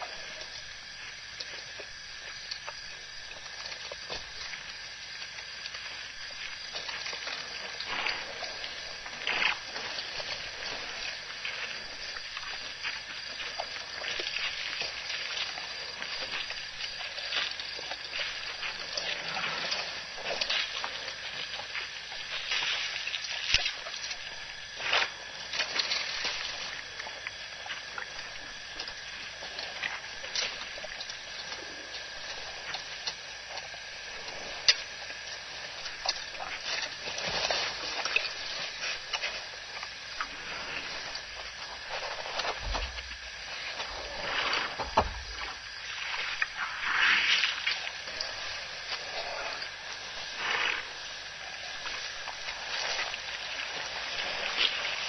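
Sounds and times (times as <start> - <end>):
water sloshing and splashing: 0.0 - 55.0.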